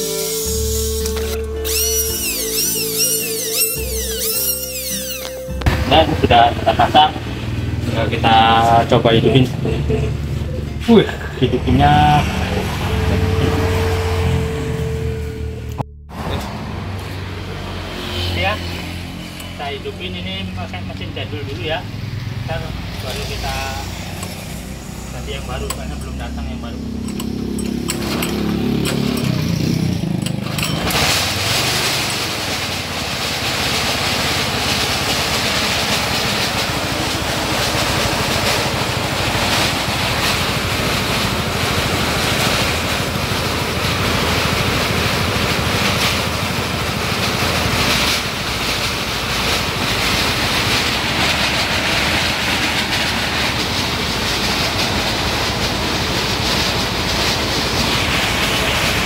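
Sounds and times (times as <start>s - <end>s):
recoil cord pull start: 0.0s - 5.6s, 27.0s - 32.4s
engine and threshing machinery running: 0.0s - 59.0s.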